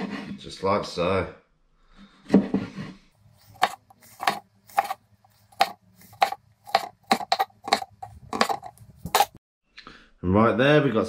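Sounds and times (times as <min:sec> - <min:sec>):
knife cutting on cutting board: 0:03.3 - 0:09.4.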